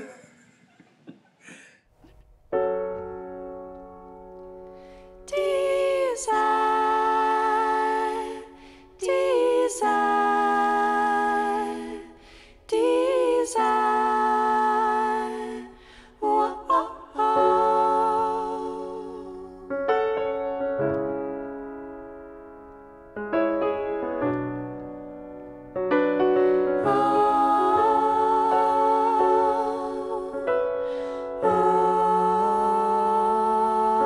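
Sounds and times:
piano chord: 0:02.4 - 0:05.7
women singing in harmony: 0:05.2 - 0:19.8, 0:26.8 - 0:34.0.

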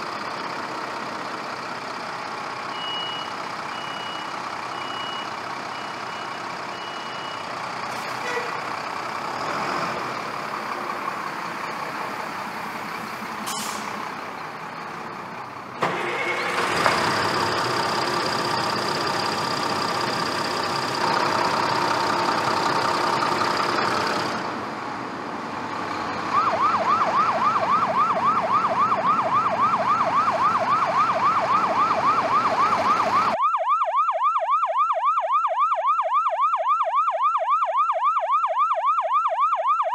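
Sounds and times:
electronic siren wailing: 0:26.3 - 0:39.9.

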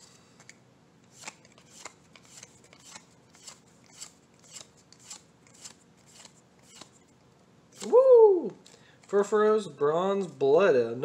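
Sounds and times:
cards flicking: 0:01.1 - 0:07.0.

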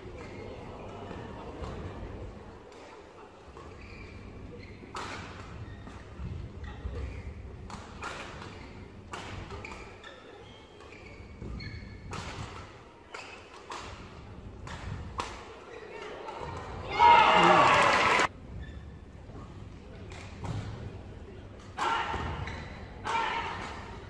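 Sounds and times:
shoes squeaking on court floor: 0:02.6 - 0:16.8, 0:18.5 - 0:20.8, 0:22.3 - 0:23.0
rackets hitting shuttlecock: 0:10.8 - 0:15.5.

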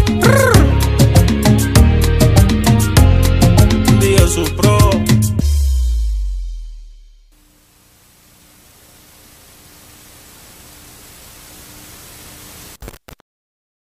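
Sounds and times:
faint hum: 0:07.4 - 0:13.0
television static hiss: 0:07.4 - 0:13.2.

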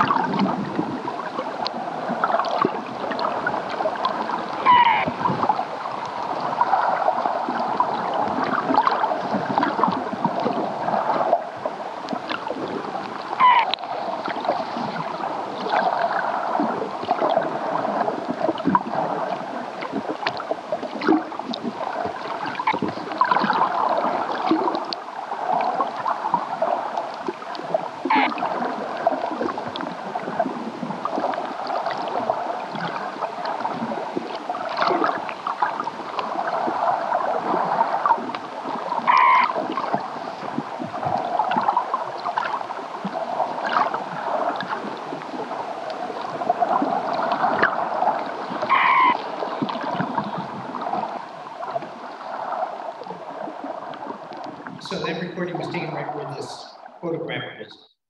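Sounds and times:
underwater cawing calls: 0:02.2 - 0:08.0, 0:13.1 - 0:14.4, 0:21.8 - 0:30.3, 0:34.6 - 0:52.8.

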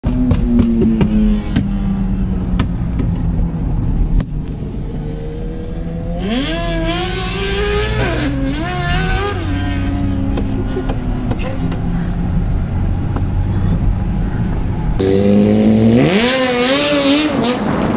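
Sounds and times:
car engine: 0:00.0 - 0:17.9
road hum: 0:00.0 - 0:17.9
motorcycle accelerating hard: 0:04.9 - 0:11.9, 0:14.9 - 0:17.9.

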